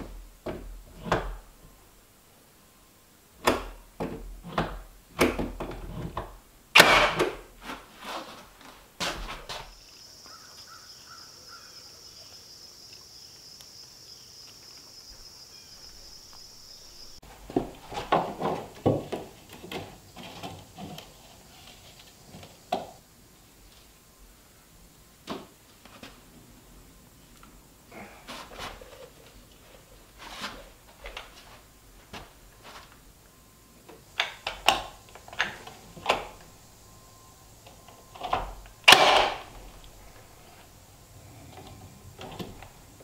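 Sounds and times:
nailer firing nails: 0:06.8 - 0:07.4, 0:38.9 - 0:39.6
high insect drone: 0:09.7 - 0:17.2.

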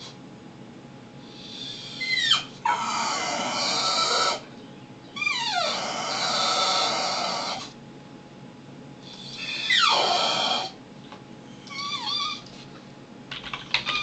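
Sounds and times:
dog yelping and wailing: 0:01.3 - 0:04.5, 0:05.2 - 0:07.8, 0:09.1 - 0:10.8, 0:11.7 - 0:12.5.

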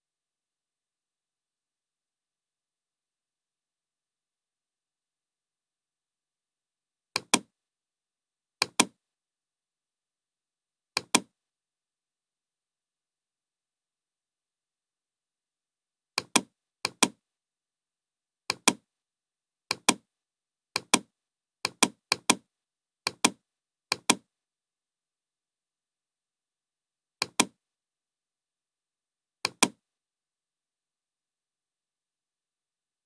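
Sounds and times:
computer mouse button clicks: 0:07.2 - 0:07.5, 0:08.6 - 0:09.0, 0:11.0 - 0:11.3, 0:16.2 - 0:17.2, 0:18.5 - 0:18.8, 0:19.7 - 0:20.0, 0:23.1 - 0:24.2, 0:27.2 - 0:27.6, 0:29.4 - 0:29.8.

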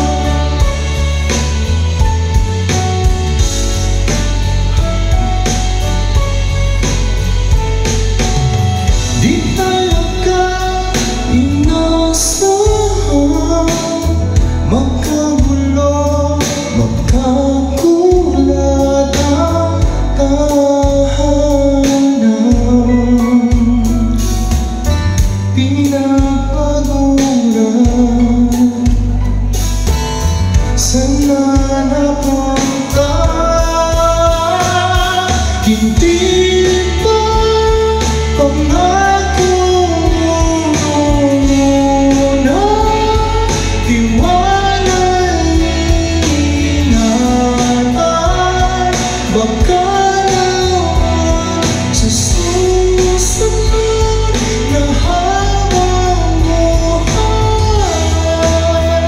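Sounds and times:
man singing karaoke: 0:00.0 - 0:08.2, 0:08.8 - 0:29.8, 0:30.5 - 0:59.0
backing track with heavy bass: 0:00.0 - 0:59.0.

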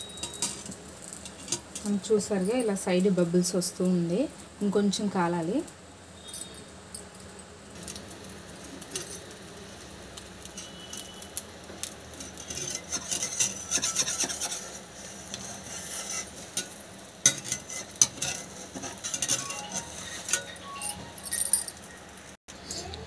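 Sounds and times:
hot oil sizzling: 0:00.0 - 0:21.2
spatula scraping a pan: 0:11.8 - 0:20.7.

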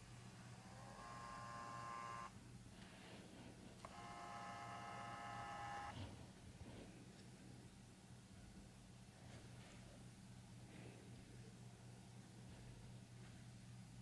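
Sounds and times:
camera zoom motor whirring: 0:00.4 - 0:02.4, 0:03.8 - 0:06.0.

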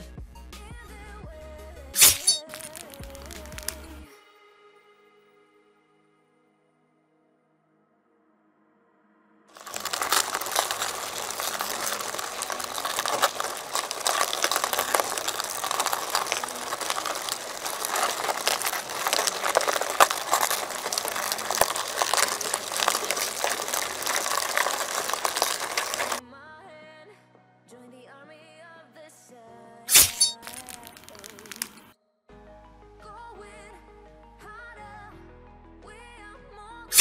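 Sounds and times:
dense crackling and crunching: 0:02.0 - 0:04.1, 0:09.6 - 0:26.2, 0:29.9 - 0:31.9.

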